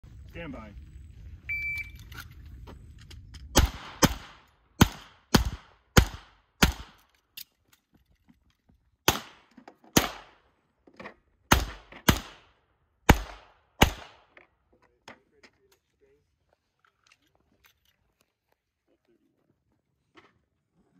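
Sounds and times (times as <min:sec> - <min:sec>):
handgun shots with echo: 0:03.5 - 0:07.0, 0:09.1 - 0:10.4, 0:11.5 - 0:12.5, 0:13.1 - 0:14.3.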